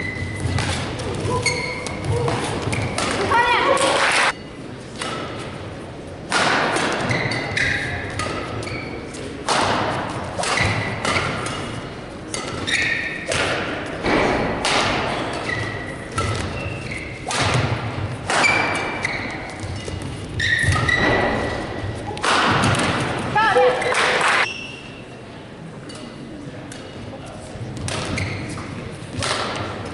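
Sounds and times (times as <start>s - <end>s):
shoes squeaking on court: 0.0s - 3.3s, 7.0s - 9.3s, 10.4s - 13.3s, 15.1s - 17.3s, 18.4s - 22.0s, 27.7s - 29.0s
racket striking shuttlecock: 9.4s - 13.8s, 14.5s - 16.5s, 17.2s - 19.2s, 29.2s - 29.7s.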